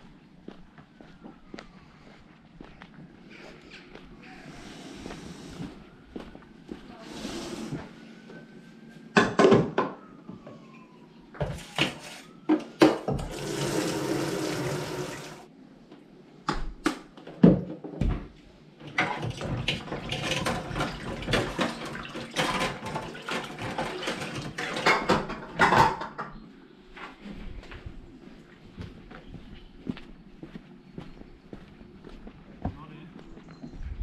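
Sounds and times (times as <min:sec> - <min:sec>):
water splashing in sink: 0:13.1 - 0:15.5, 0:18.9 - 0:25.0.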